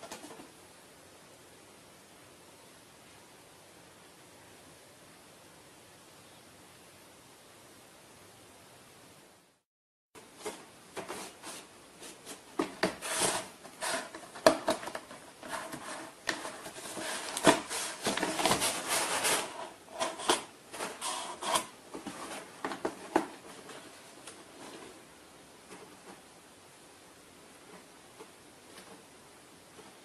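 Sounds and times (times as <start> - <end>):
cat scraping in cardboard box: 12.3 - 14.4, 15.4 - 21.7.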